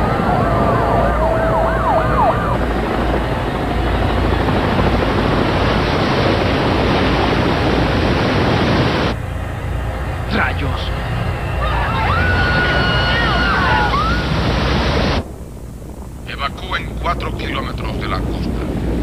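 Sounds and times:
emergency siren wailing: 0:00.0 - 0:05.6, 0:09.2 - 0:15.0
loud steady rushing noise: 0:00.0 - 0:19.0
low traffic rumble: 0:00.0 - 0:19.0.

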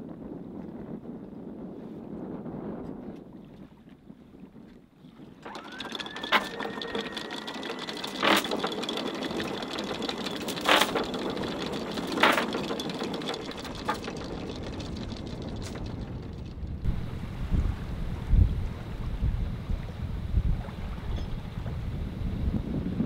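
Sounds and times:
windlass motor whine: 0:05.3 - 0:23.0
metallic chain clanks: 0:06.8 - 0:16.5.

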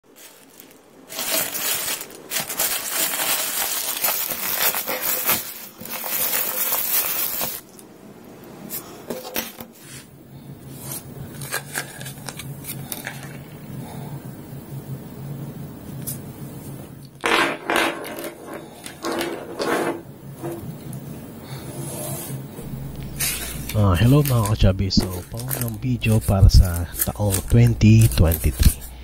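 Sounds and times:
plastic mailer bag tearing and crinkling: 0:00.1 - 0:07.8, 0:22.6 - 0:29.0
low steady hum: 0:00.1 - 0:17.2, 0:18.2 - 0:29.0.

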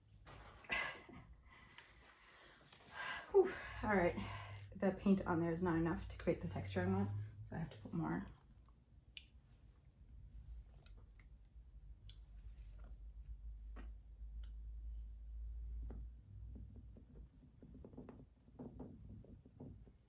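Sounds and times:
low rumble: 0:03.9 - 0:08.7.

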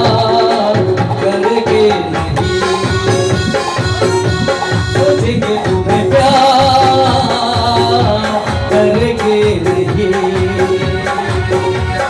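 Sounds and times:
keyboard and harmonium chords: 0:00.0 - 0:12.0
tabla rhythm: 0:00.0 - 0:12.0
wavering held melody line: 0:01.4 - 0:06.2.

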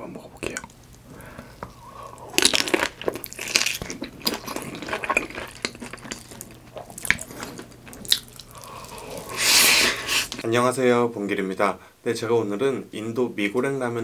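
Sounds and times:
wet food chewed: 0:00.4 - 0:10.4.

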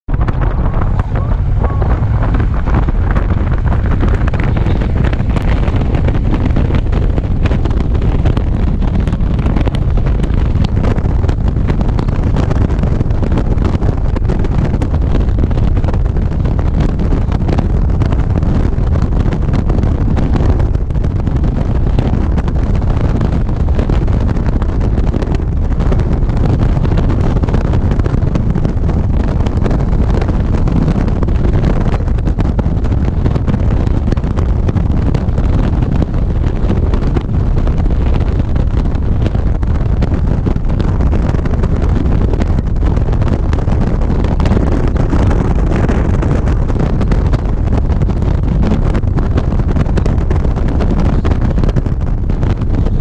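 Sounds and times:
motorcycle engine: 0:00.0 - 0:27.6
road noise: 0:00.0 - 0:53.0
wind rushing over microphone: 0:00.0 - 0:53.0.

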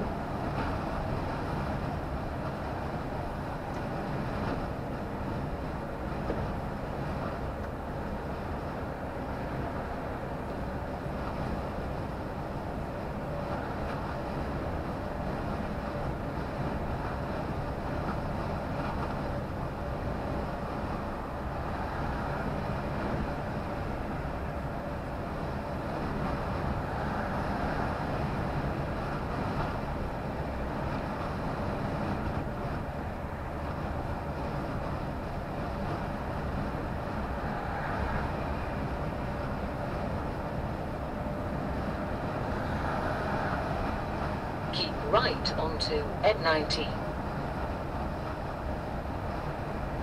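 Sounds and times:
tyre road noise: 0:00.0 - 0:45.8, 0:46.8 - 0:50.0
lorry engine drone: 0:43.5 - 0:50.0
faint steady whine: 0:44.7 - 0:47.2.

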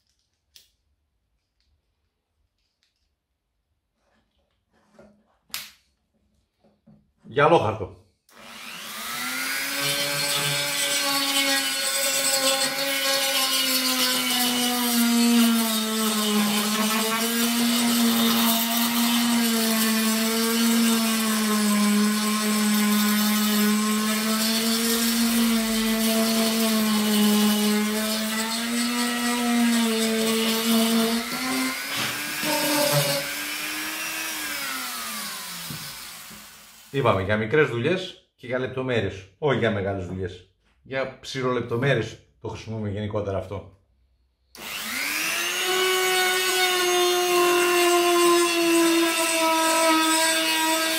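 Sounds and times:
rotary tool motor whine: 0:08.3 - 0:10.7, 0:44.6 - 0:46.0.

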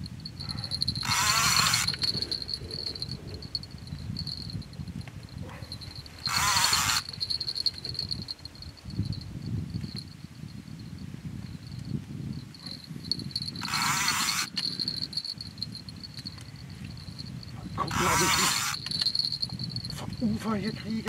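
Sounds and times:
insects trilling: 0:00.0 - 0:20.8
harsh rasping noise: 0:00.4 - 0:04.4, 0:05.7 - 0:08.3, 0:13.3 - 0:15.8, 0:17.8 - 0:20.2.

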